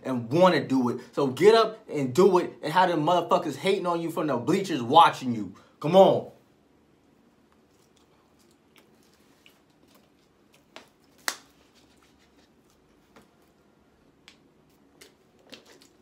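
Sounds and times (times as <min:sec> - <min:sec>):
person chewing food: 0:07.1 - 0:16.0.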